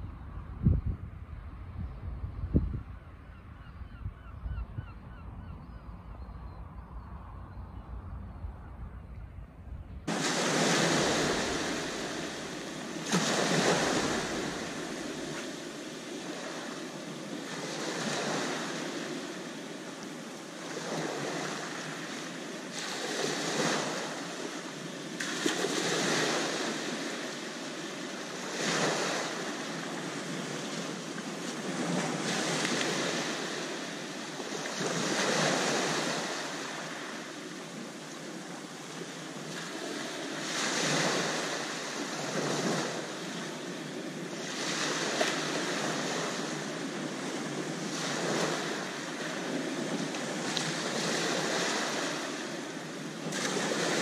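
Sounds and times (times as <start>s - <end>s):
waves washing over pebble beach: 10.1s - 37.1s, 39.4s - 54.0s.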